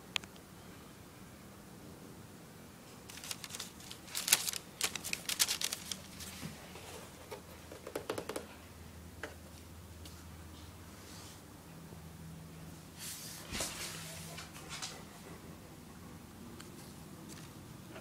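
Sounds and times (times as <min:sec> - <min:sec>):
tissue paper crinkling: 0:03.1 - 0:06.4.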